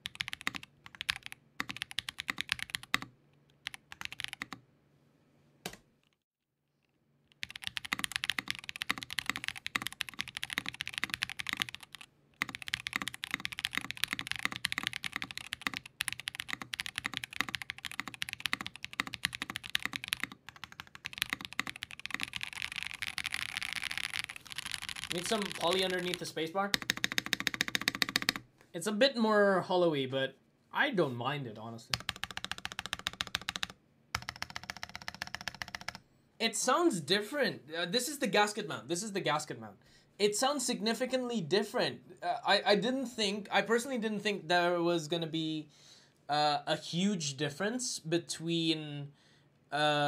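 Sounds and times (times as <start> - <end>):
mechanical keyboard typing: 0.0 - 4.6, 7.3 - 28.4, 31.9 - 36.0.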